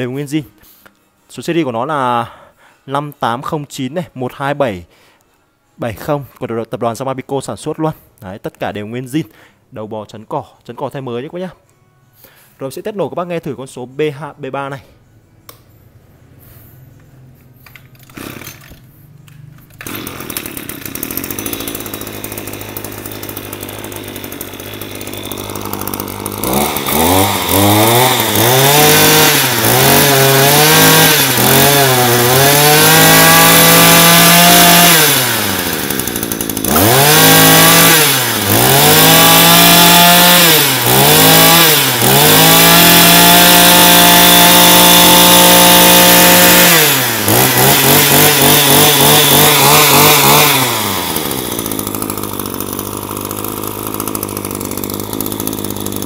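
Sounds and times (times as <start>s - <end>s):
brush cutter engine revving: 18.0s - 56.0s.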